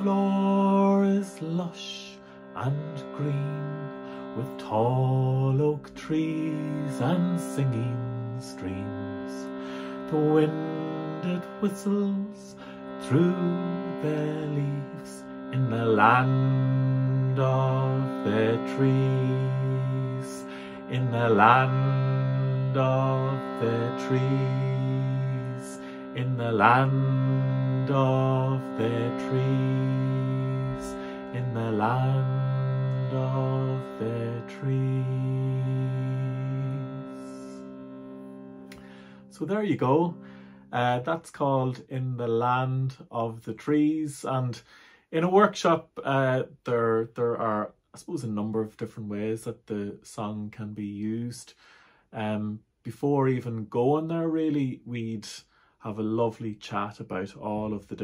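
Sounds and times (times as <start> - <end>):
shruti box drone: 0.0 - 43.9.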